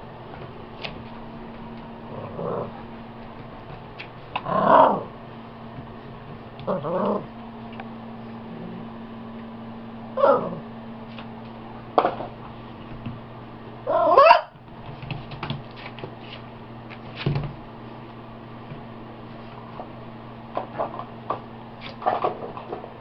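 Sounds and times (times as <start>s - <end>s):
steady low hum: 0.0s - 23.0s
puppies yipping and growling: 13.9s - 14.5s.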